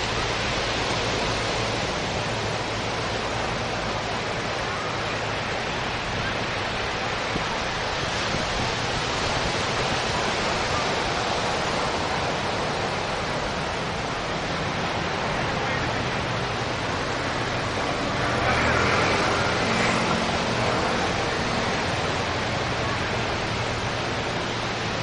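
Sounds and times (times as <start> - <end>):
ocean surf breaking: 0.0 - 25.0.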